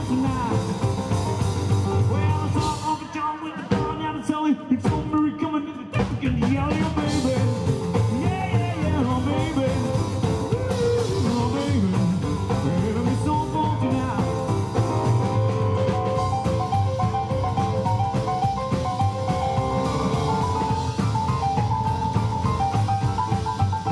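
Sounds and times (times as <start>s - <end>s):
person singing: 0.0s - 1.4s, 2.0s - 15.9s, 19.5s - 21.5s
rock and roll band playing: 0.0s - 23.9s.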